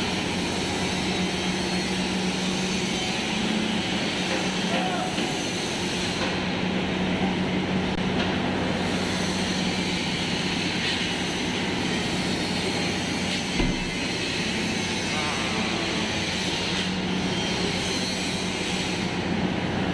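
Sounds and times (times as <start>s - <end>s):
short thump: 13.6s - 14.0s.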